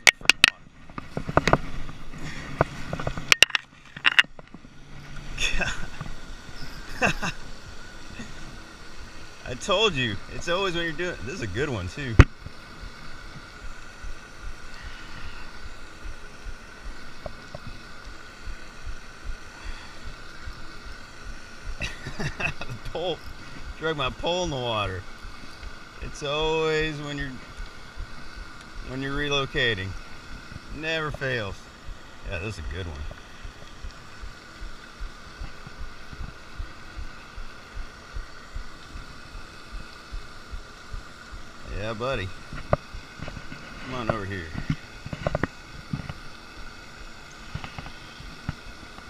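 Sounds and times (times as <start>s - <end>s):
wind and handling thumps: 0.0s - 5.3s, 42.5s - 46.2s
fishing reel whirring: 1.4s - 43.6s.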